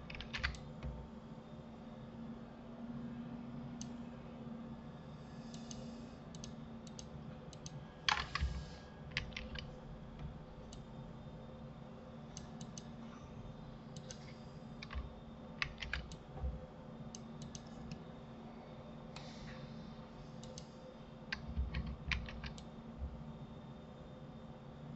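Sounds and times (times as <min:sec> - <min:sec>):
keyboard and mouse clicking: 0:00.1 - 0:00.7, 0:05.6 - 0:09.7, 0:14.0 - 0:16.2, 0:17.4 - 0:18.0, 0:20.4 - 0:20.7, 0:21.3 - 0:22.7.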